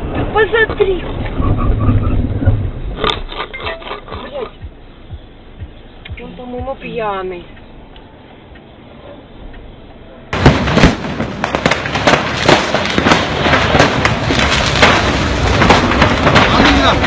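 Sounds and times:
fireworks bangs and crackling pops: 10.4s - 17.0s.

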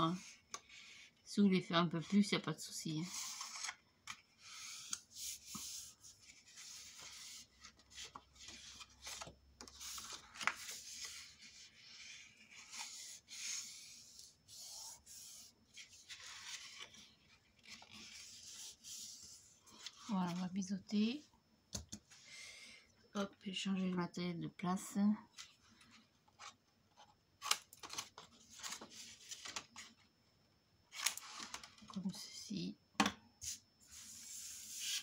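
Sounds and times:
cardstock rustling and rubbing: 3.0s - 20.7s.

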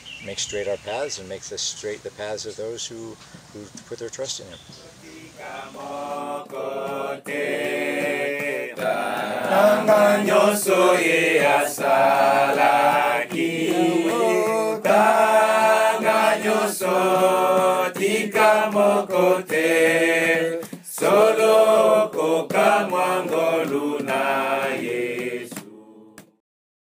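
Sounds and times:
group of voices chanting: 4.9s - 26.4s.

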